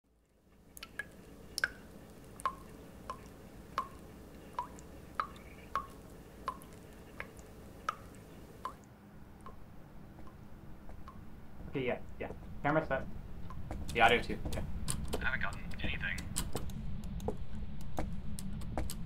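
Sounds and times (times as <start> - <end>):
low steady hum: 0.1 - 19.0
faucet dripping into sink: 0.7 - 8.8.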